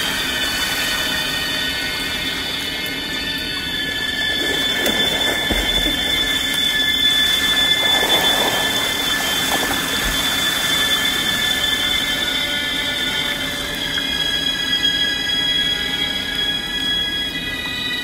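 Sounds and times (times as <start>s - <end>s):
steady high-pitched whine: 0.0s - 18.0s
water splashing: 2.7s - 13.4s.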